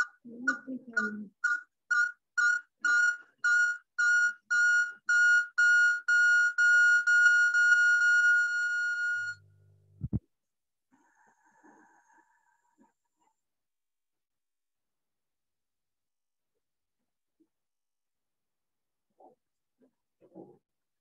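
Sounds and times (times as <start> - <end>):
electronic beeping: 0.0 - 9.4
steady high tone: 1.4 - 9.4.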